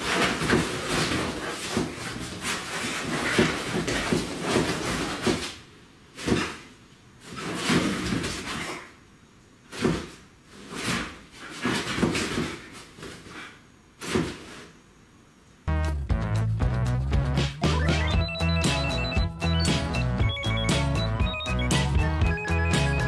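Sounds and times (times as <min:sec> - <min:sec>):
paws thumping on mattress: 0:00.0 - 0:05.6, 0:09.8 - 0:13.5.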